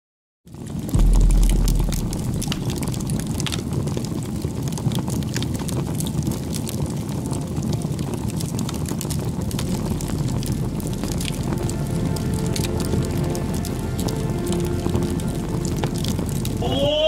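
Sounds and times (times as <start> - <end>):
bonfire flames rumbling: 0.5 - 17.0
wood crackling and popping: 0.5 - 17.0
deep low boom: 1.0 - 4.5, 9.4 - 17.0.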